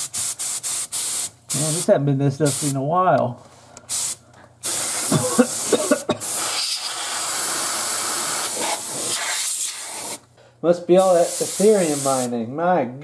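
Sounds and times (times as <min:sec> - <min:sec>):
compressed air spraying hiss: 0:00.0 - 0:01.9, 0:03.9 - 0:10.2, 0:11.0 - 0:12.3.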